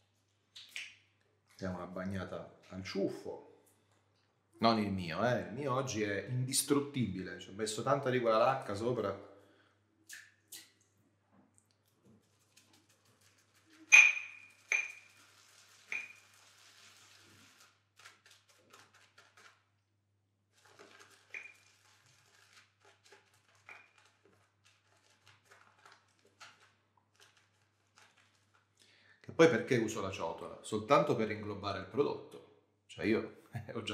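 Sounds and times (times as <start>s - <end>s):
ringing clinks on a shaving bowl: 13.9s - 15.2s
shaving brush swishing in bowl: 14.5s - 17.8s.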